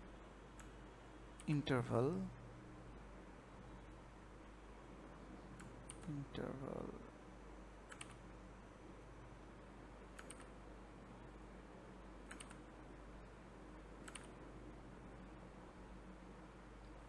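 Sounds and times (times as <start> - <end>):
computer keyboard and mouse clicks: 0.5 - 0.8, 5.6 - 6.2, 7.9 - 8.2, 10.1 - 10.5, 12.2 - 12.7, 14.0 - 14.4.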